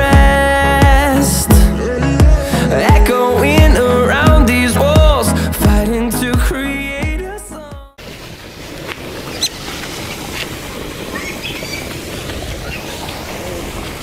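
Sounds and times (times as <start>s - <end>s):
background music: 0.0s - 8.0s
wind rumbling on microphone: 8.0s - 14.0s
bird chirps: 9.3s - 10.4s, 11.1s - 13.3s.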